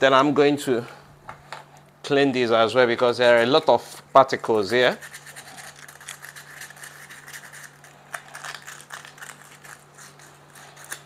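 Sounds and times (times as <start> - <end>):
sandpaper scratching metal: 4.8 - 7.8.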